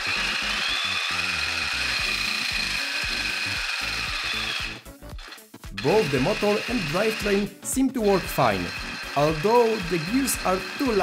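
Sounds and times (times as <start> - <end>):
motor whining: 0.0 - 11.0.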